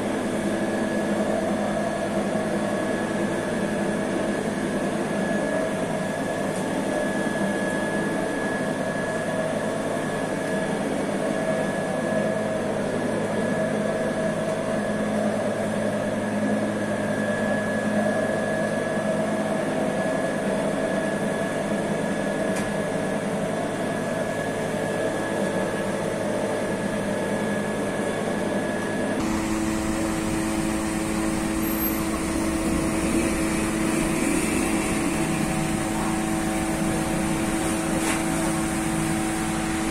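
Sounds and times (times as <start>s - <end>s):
bakery machinery hum: 0.0s - 39.9s
machine whining tones: 27.4s - 39.9s.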